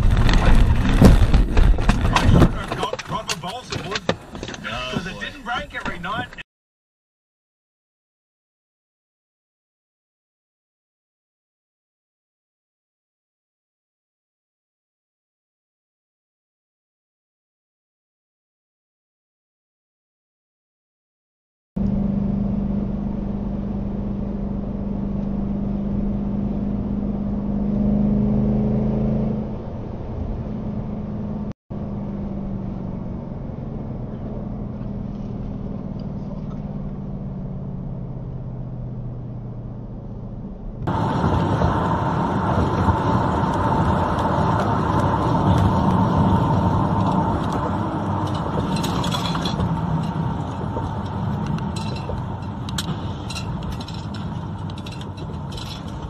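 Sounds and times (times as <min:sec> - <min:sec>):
car engine hum: 0:00.0 - 0:06.4, 0:21.8 - 0:56.0
rough road noise: 0:00.0 - 0:06.4, 0:21.8 - 0:56.0.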